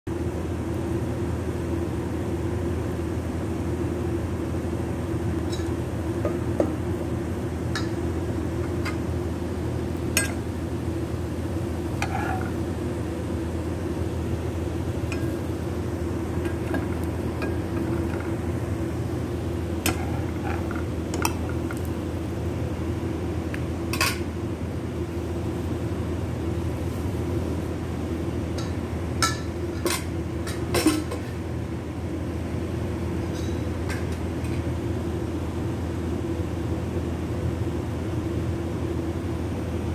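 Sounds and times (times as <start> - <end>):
steady low hum: 0.1 - 39.9
spatula scraping frying pan: 11.9 - 12.6.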